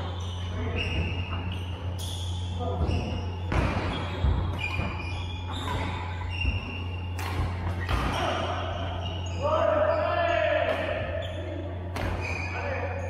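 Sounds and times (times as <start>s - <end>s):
shoes squeaking: 0.0s - 13.0s
rackets hitting shuttlecocks: 7.0s - 8.6s.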